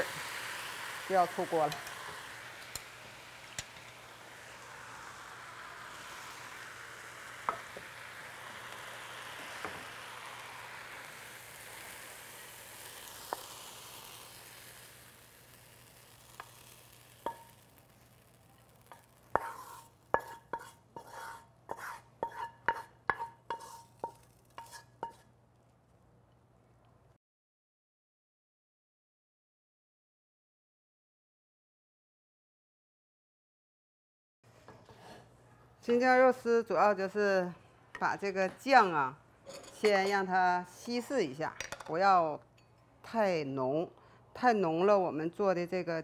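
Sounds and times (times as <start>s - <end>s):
potatoes sizzling in a wok: 0.0s - 25.2s
spatula knocking on wok: 18.9s - 25.2s.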